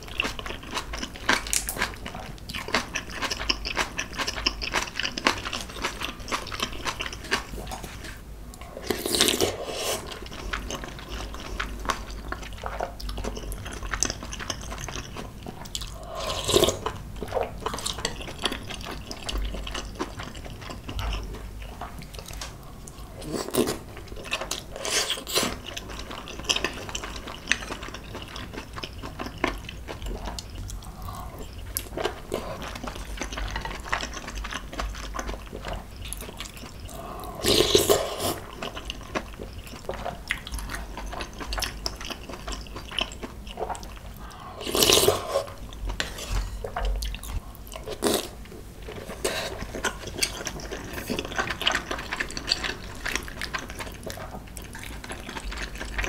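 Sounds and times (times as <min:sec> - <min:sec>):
chewing: 0:00.0 - 0:56.0
slurping noodles and broth: 0:08.8 - 0:10.2, 0:36.9 - 0:38.6, 0:44.4 - 0:46.8.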